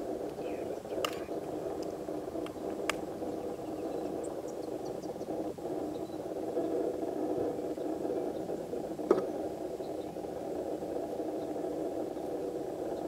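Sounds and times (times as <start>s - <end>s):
high ticks: 0.0s - 13.0s
faint sharp clicks: 1.0s - 3.1s.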